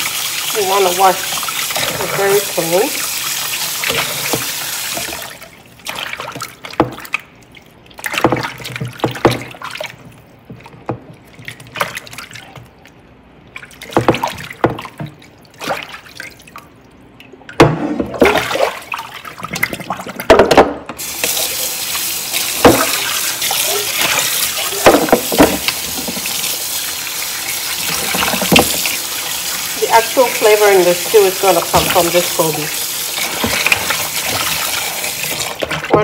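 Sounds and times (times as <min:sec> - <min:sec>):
tap water running: 0:00.0 - 0:07.3, 0:17.5 - 0:36.0
fish splashing in a bowl of water: 0:00.0 - 0:20.4, 0:21.0 - 0:36.0.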